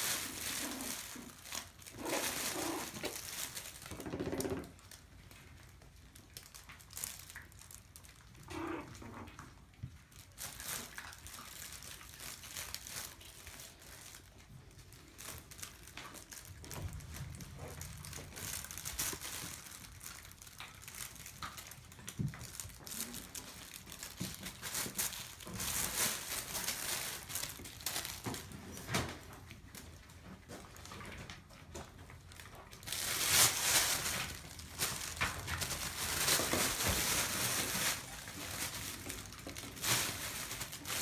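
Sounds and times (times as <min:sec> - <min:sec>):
bedding rustling and crinkling: 0:00.0 - 0:09.0, 0:09.8 - 0:41.0.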